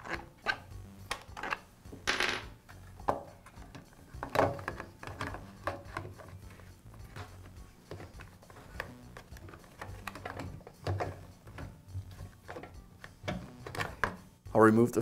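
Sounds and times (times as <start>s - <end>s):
plastic clattering: 3.1s - 14.2s.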